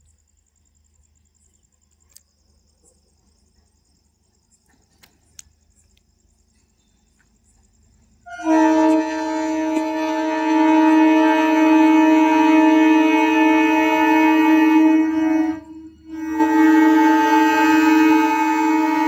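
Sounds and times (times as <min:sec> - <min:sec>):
crickets chirping: 0:00.0 - 0:19.0
train horn chord: 0:08.2 - 0:19.0.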